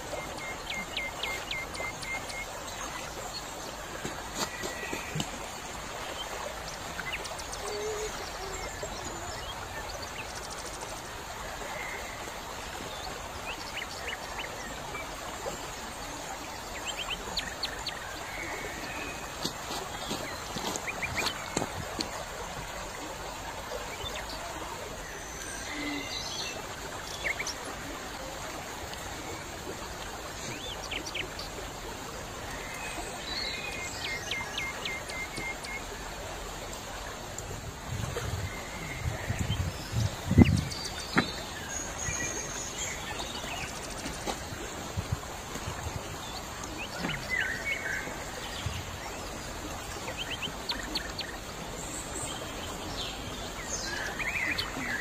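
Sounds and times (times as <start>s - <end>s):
stream running over pebbles: 0.0s - 55.0s
small birds chirping: 18.8s - 22.2s.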